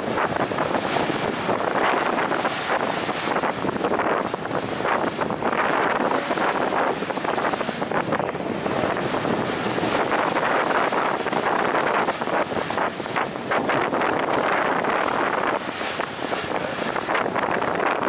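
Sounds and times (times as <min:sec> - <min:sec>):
wind buffeting microphone: 0:00.0 - 0:18.0.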